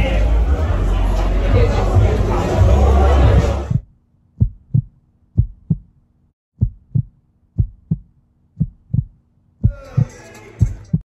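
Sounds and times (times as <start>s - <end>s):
crowd noise: 0.0s - 3.8s
heartbeat thumps: 1.5s - 5.9s, 6.6s - 11.0s.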